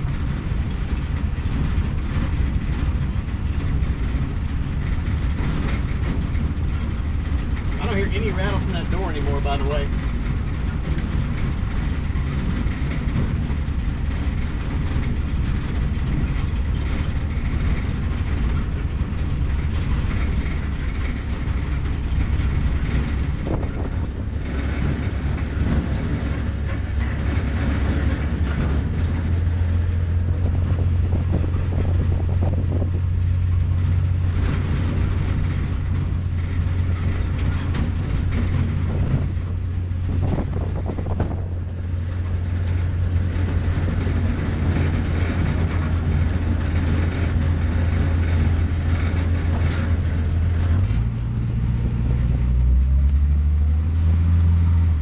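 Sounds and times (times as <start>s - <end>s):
road and wind noise: 0.0s - 55.0s
truck engine drone: 0.0s - 55.0s.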